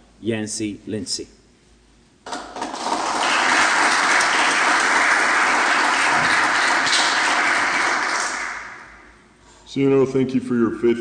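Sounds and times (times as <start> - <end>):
audience applause: 2.3 - 9.0.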